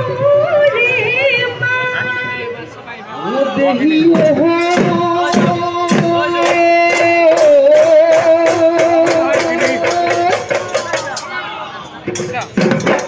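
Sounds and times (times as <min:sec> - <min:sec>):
dhol drums beating: 0:03.8 - 0:13.0.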